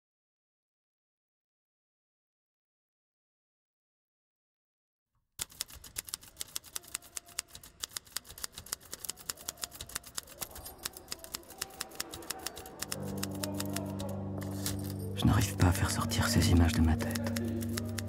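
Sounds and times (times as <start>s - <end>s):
rapid sharp clicks: 5.4s - 15.0s, 16.8s - 18.0s
low droning chord: 12.9s - 18.0s.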